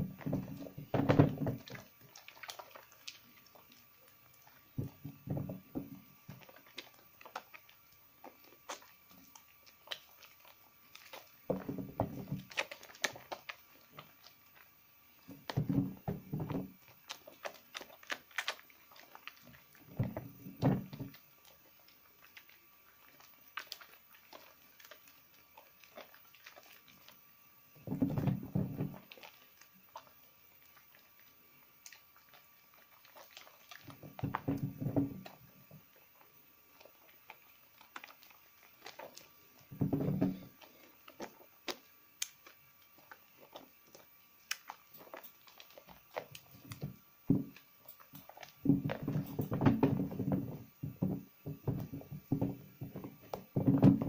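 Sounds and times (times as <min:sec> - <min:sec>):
lather clicks and crackles: 0:00.0 - 0:54.0
wet squelching of soap: 0:00.0 - 0:54.0.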